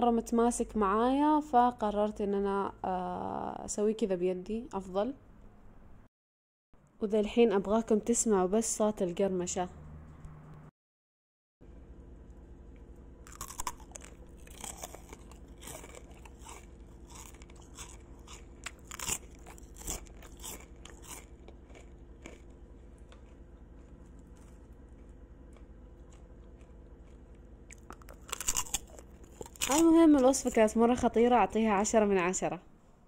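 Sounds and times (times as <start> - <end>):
popcorn crunching: 13.2 - 30.7.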